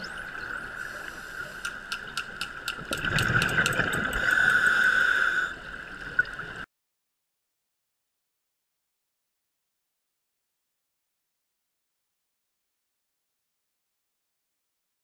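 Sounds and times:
sharp underwater clicks: 0:01.4 - 0:04.9.

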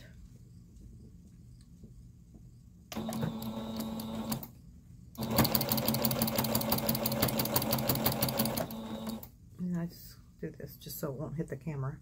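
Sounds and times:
sewing machine clatter: 0:05.2 - 0:09.2.

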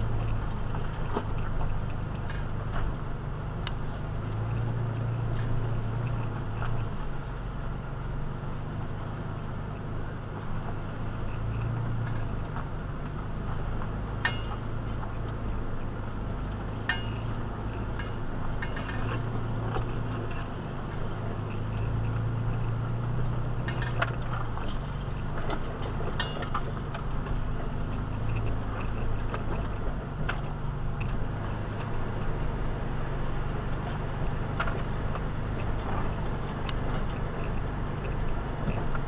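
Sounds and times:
clinks and knocks of vehicle: 0:00.0 - 0:32.2, 0:33.6 - 0:39.0
vehicle engine running: 0:00.0 - 0:39.0.

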